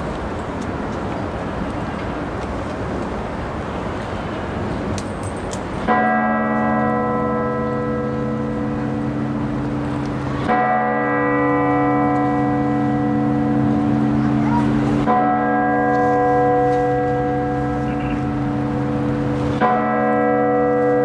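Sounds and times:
large bell tolling: 0:05.2 - 0:21.0.

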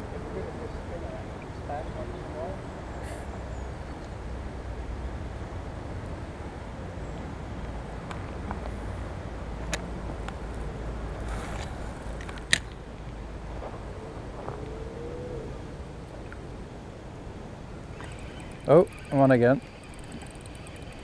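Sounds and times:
fishing reel clicking: 0:18.0 - 0:21.0.

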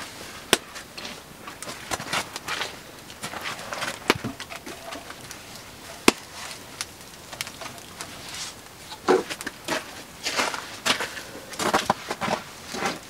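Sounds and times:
campfire crackling and popping: 0:00.0 - 0:13.0.

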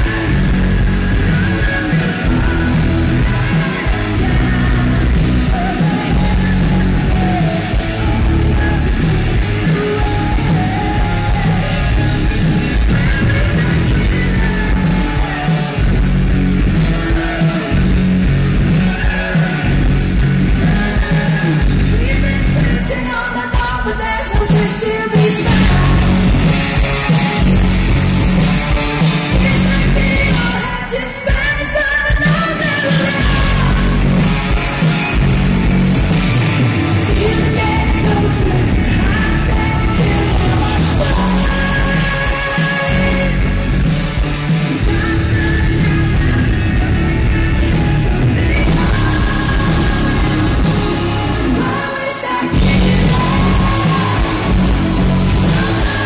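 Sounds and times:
woman singing: 0:00.0 - 0:16.0, 0:20.4 - 0:27.3, 0:29.0 - 0:34.6, 0:37.0 - 0:44.0, 0:44.7 - 0:56.0
live metal band playing: 0:00.0 - 0:56.0.

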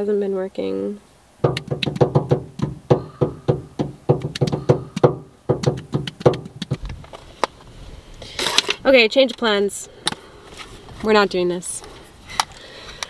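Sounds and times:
hands slapping bare belly: 0:01.5 - 0:06.9.

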